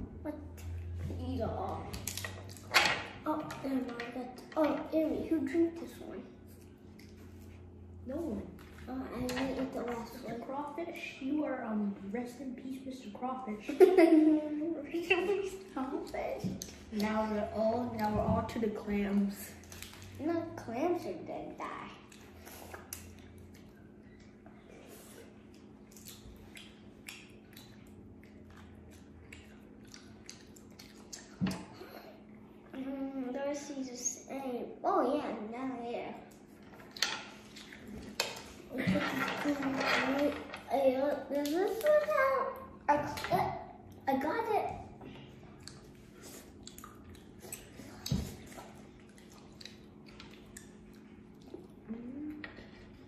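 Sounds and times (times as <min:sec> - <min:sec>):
low steady hum: 0:00.0 - 0:53.0
chewing: 0:06.4 - 0:07.7, 0:22.0 - 0:31.8, 0:45.4 - 0:53.0.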